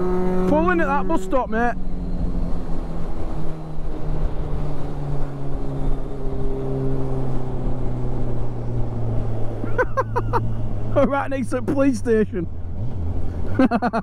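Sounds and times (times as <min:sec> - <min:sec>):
motorcycle engine running: 0:00.0 - 0:03.0.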